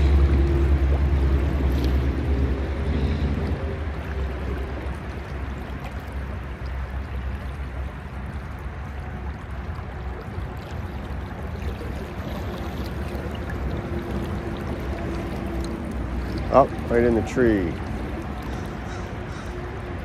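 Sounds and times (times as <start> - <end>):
low rumble: 0.0 - 5.8
creek water rushing: 0.0 - 20.0.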